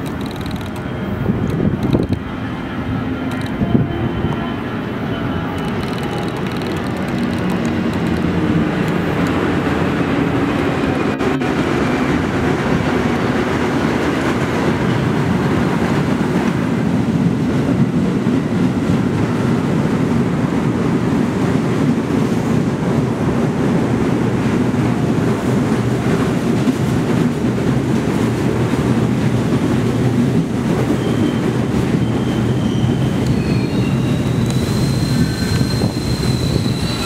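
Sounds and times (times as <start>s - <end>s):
subway train rumble on rails: 0.0s - 37.0s
train brakes squealing: 0.2s - 8.2s, 30.8s - 37.0s.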